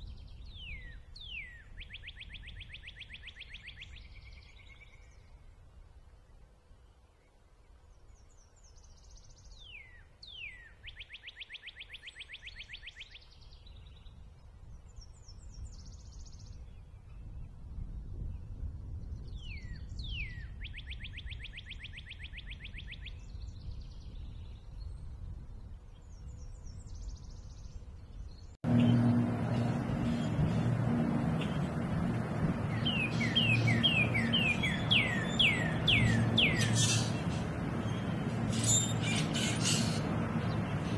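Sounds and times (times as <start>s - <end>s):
bird singing whistles: 0.5s - 5.1s, 19.4s - 23.2s, 32.7s - 37.2s
steady low hum: 28.6s - 40.9s.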